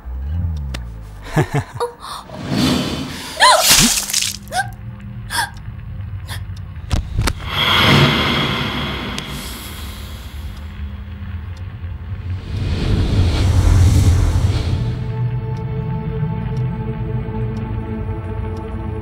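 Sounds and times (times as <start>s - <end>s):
woman gasping and crying out: 2.0s - 2.4s, 3.1s - 4.7s, 5.3s - 5.6s
rush of noise: 7.0s - 15.2s.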